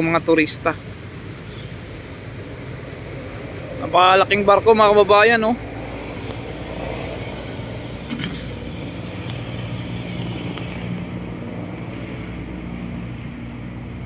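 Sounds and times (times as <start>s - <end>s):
road traffic hum: 0.0s - 14.0s.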